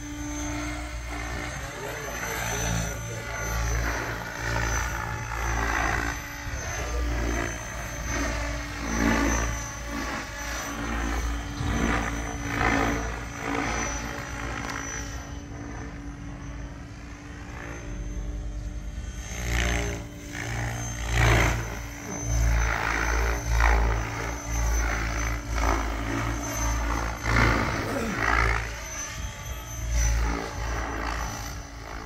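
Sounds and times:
electric motor whine: 0.0 - 32.0
helicopter rotor whoosh: 0.0 - 32.0.

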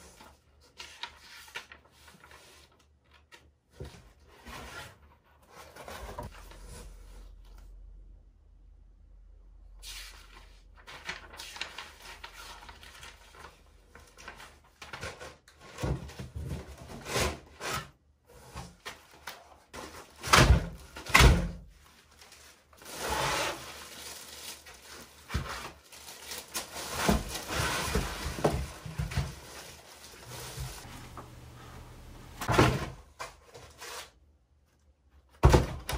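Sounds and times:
foam and plastic scraping: 22.6 - 33.0
paper leaflet rustling: 30.2 - 32.5.

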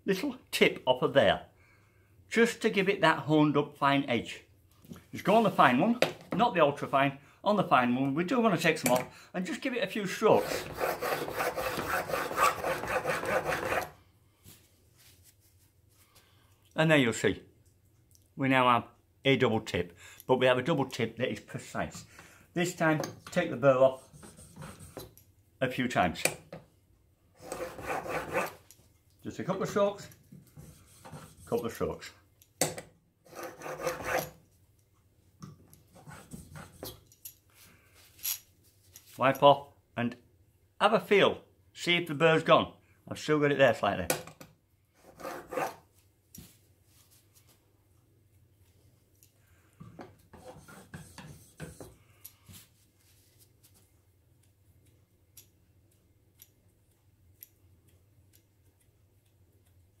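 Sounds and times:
chisel scraping on sharpening stone: 10.4 - 14.0, 33.3 - 34.4, 45.0 - 45.8, 50.3 - 52.0.

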